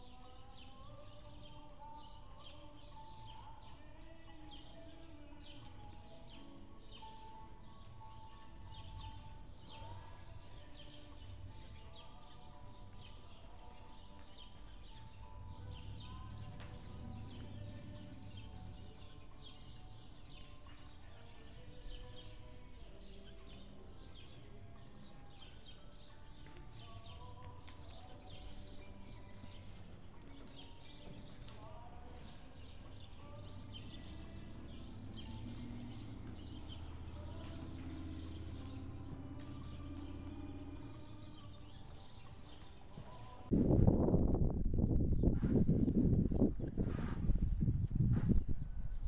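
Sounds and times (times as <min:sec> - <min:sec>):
small birds chirping: 0:00.0 - 0:49.0
muffled hoofbeats on sand: 0:08.0 - 0:22.3, 0:23.2 - 0:44.3, 0:45.0 - 0:49.0
steady low rumble: 0:43.5 - 0:49.0.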